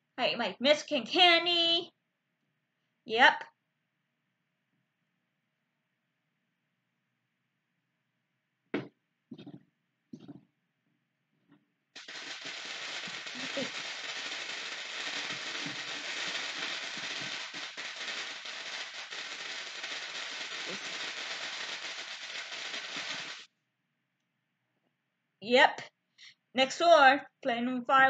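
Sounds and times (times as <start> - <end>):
firecrackers crackling: 12.0 - 23.5.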